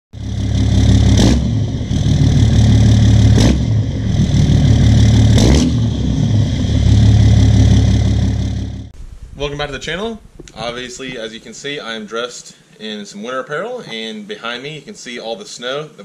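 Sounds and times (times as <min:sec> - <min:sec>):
loud engine droning: 0:00.2 - 0:09.0.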